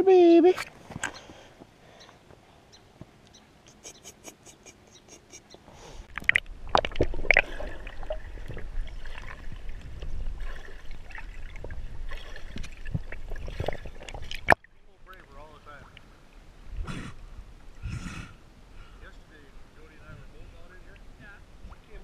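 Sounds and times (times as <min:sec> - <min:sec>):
water splashing: 0:06.1 - 0:16.3
water gurgling and sloshing underwater: 0:06.1 - 0:16.8.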